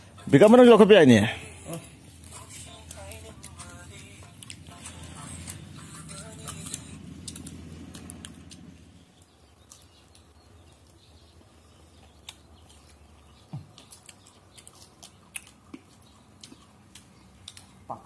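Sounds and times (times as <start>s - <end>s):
background music: 0.0s - 8.0s.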